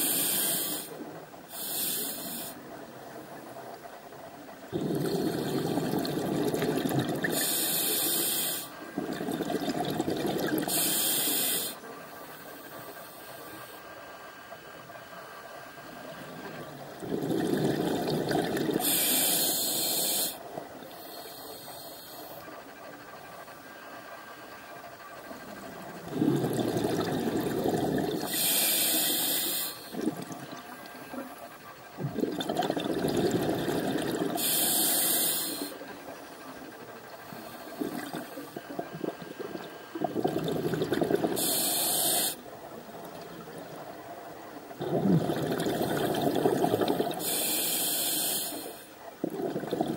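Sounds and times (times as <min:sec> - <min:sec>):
regulator hiss: 0:00.0 - 0:03.1, 0:07.1 - 0:08.8, 0:10.6 - 0:16.8, 0:18.8 - 0:31.3, 0:33.7 - 0:43.9, 0:46.2 - 0:49.1
exhaled bubbles gurgling underwater: 0:04.4 - 0:13.1, 0:15.8 - 0:21.1, 0:25.1 - 0:49.9.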